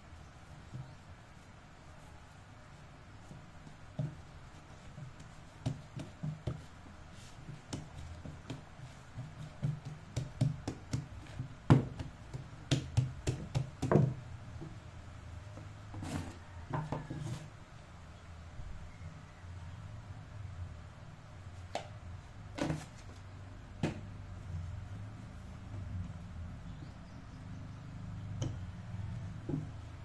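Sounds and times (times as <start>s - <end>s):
dough thudding on a mat: 3.2s - 14.7s, 23.8s - 24.2s, 29.3s - 29.9s.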